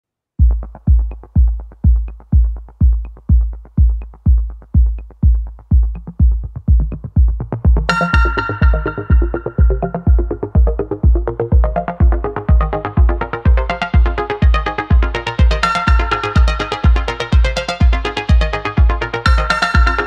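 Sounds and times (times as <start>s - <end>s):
electronic dance music kick drum: 0.4s - 20.0s
bright synthesizer chord: 7.9s - 20.0s.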